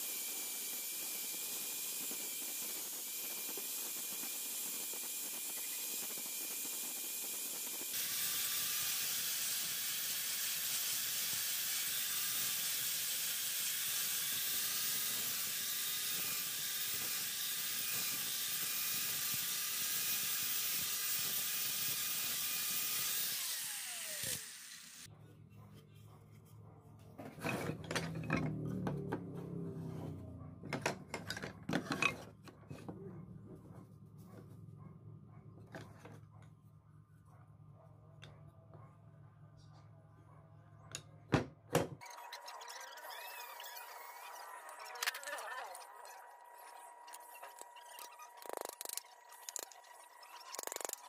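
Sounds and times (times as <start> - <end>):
angle grinder whining: 0.0 - 25.1, 42.1 - 51.0.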